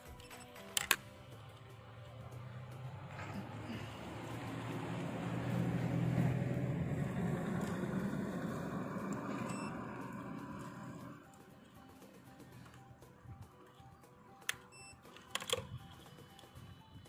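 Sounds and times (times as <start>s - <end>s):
vehicle passing by: 1.3s - 11.4s.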